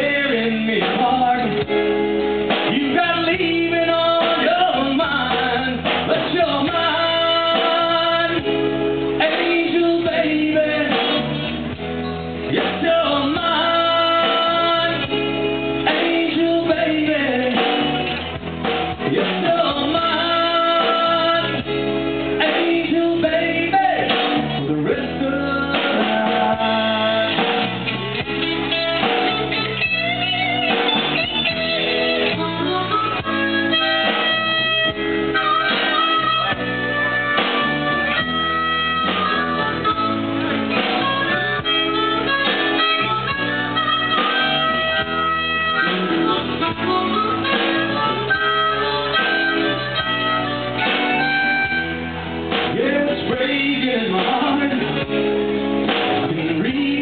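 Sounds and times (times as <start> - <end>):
man singing lead vocal: 0.0 - 30.8, 31.4 - 57.0
country-rock band playing: 0.0 - 57.0
harmonica: 28.4 - 52.6.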